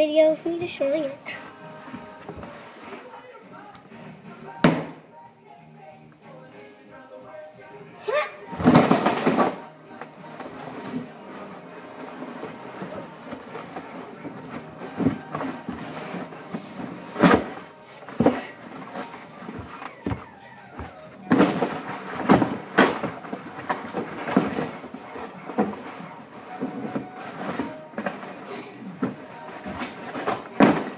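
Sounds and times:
cardboard box being crushed: 8.6s - 9.7s, 17.1s - 17.6s, 18.2s - 24.8s.

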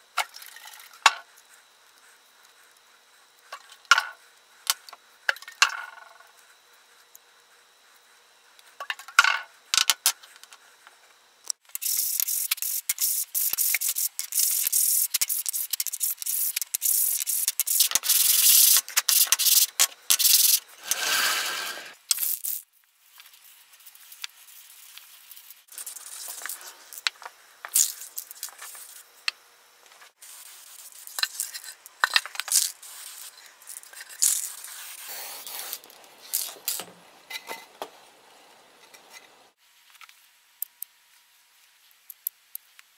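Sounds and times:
scattered clicks and rubs: 9.8s - 20.6s, 22.1s - 36.9s, 38.8s - 42.9s
wooden letters scraping on workbench: 20.8s - 22.0s.

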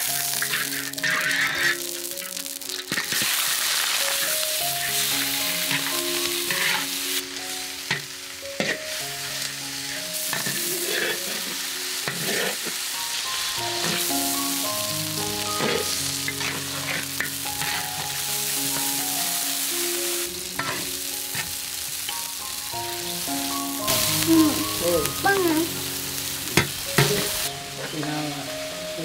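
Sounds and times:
metal spatula scraping a wok: 0.0s - 7.2s, 7.9s - 9.1s, 9.8s - 13.0s, 13.8s - 19.1s, 20.6s - 22.3s, 26.4s - 28.0s
chicken sizzling in a wok: 0.0s - 29.0s.

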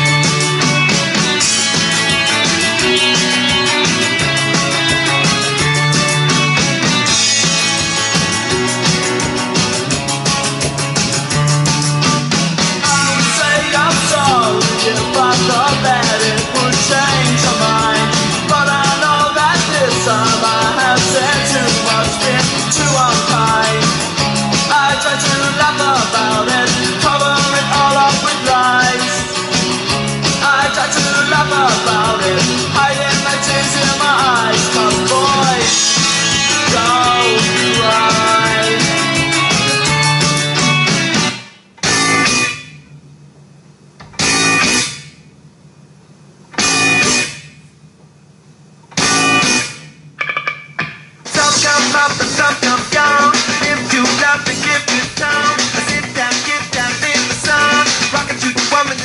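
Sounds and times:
song played through a speaker: 0.0s - 42.8s, 44.1s - 45.1s, 46.6s - 47.6s, 49.0s - 59.0s.

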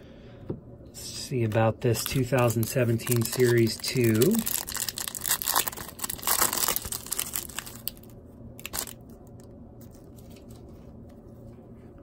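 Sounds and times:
wrapper rustle: 1.9s - 9.0s
foil wrapper tearing and crinkling: 1.9s - 9.1s.

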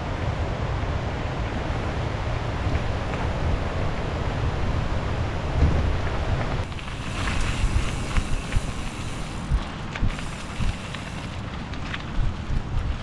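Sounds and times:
bicycle tyre noise on trail: 0.0s - 13.0s
wind buffeting microphone: 1.4s - 13.0s
bike clicks and rattles: 5.6s - 13.0s.

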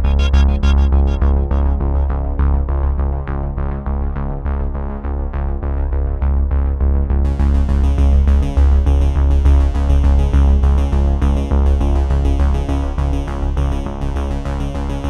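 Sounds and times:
electronic music with synth and beat: 0.0s - 2.7s.

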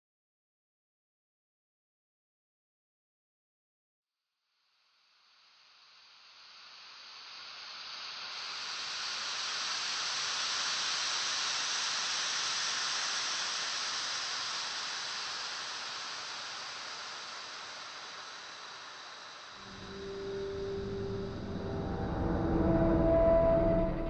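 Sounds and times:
atmospheric rushing air hiss: 5.7s - 24.0s.

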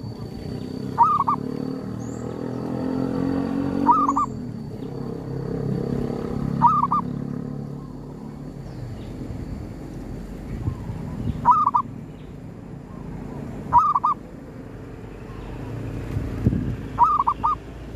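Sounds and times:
dove cooing: 0.0s - 1.5s, 3.8s - 4.5s, 5.9s - 8.0s, 10.7s - 11.9s, 13.7s - 14.2s, 17.0s - 17.7s.

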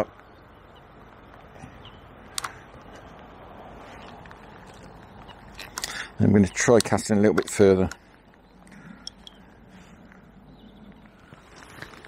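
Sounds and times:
outdoor background hiss: 0.0s - 12.0s
sharp click: 2.3s - 2.6s.

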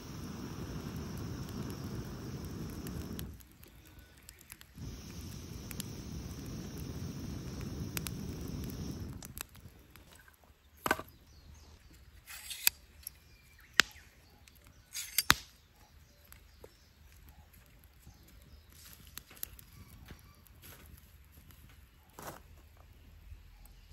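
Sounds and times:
air blown through pipe into fire: 0.0s - 9.7s.

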